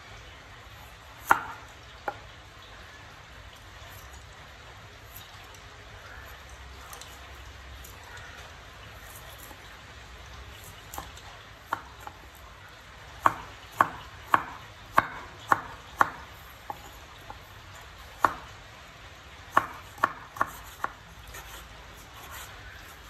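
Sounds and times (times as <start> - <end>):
cleaver chopping on wooden board: 1.2 - 2.2, 13.2 - 16.9, 19.5 - 21.6.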